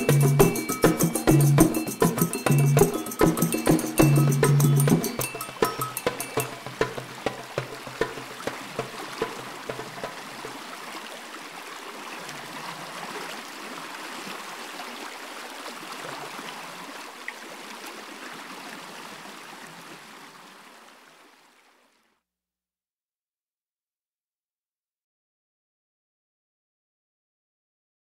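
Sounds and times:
percussion strikes: 0.0 - 10.6
water rushing: 0.0 - 21.6.

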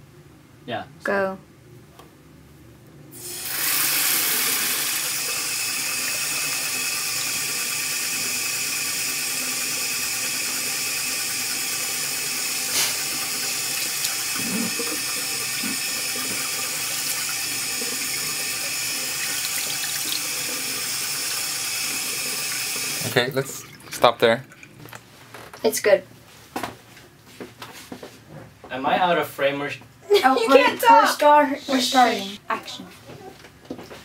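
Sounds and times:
tap water running into sink: 3.2 - 25.0.

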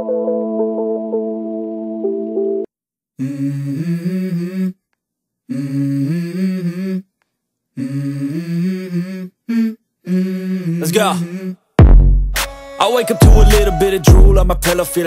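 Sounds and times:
wordless vocal music: 3.2 - 11.7, 12.4 - 15.0.

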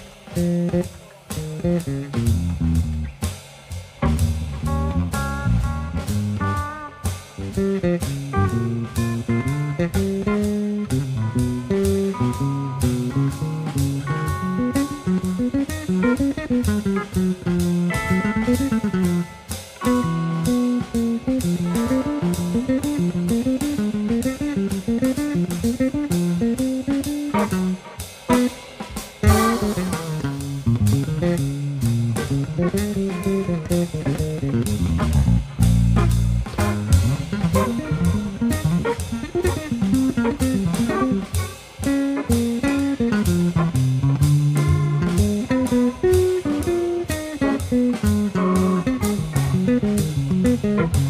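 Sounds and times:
drum kit: 0.0 - 51.0.

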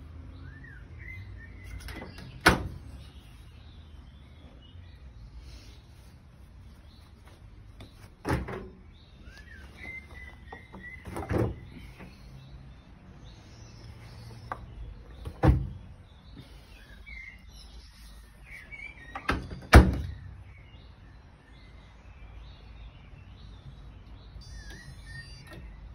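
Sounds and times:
birds chirping faintly: 0.0 - 25.9.

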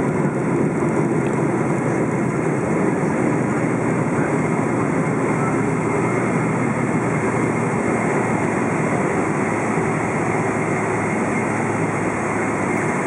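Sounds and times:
airplane cabin engine roar: 0.0 - 13.0.

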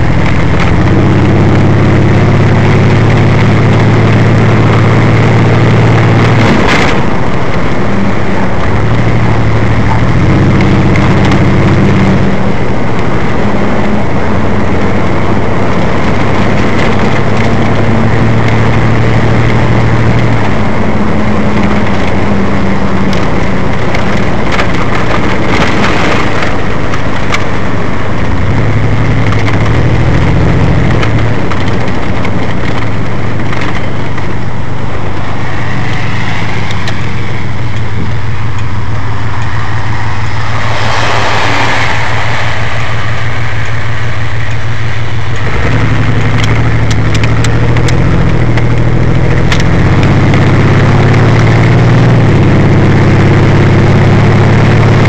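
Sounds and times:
car engine and road noise: 0.0 - 55.0
low hum shifting in pitch: 32.9 - 55.0.

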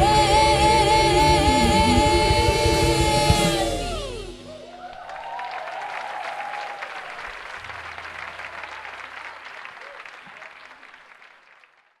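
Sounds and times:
audience whooping: 0.0 - 11.0
audience applauding: 4.4 - 12.0.

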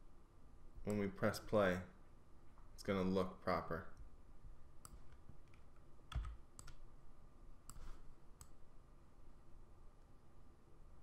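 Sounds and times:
mouse and keyboard clicks: 4.8 - 6.8, 7.7 - 8.6.

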